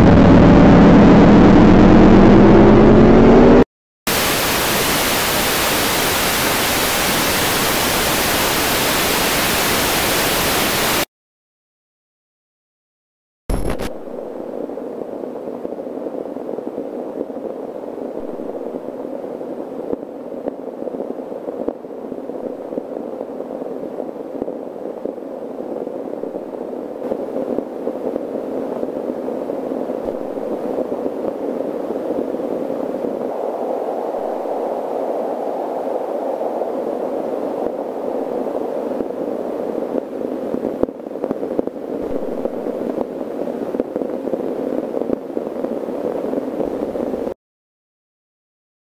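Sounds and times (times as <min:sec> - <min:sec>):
muffled rushing drone: 0:00.0 - 0:11.0, 0:26.0 - 0:47.4.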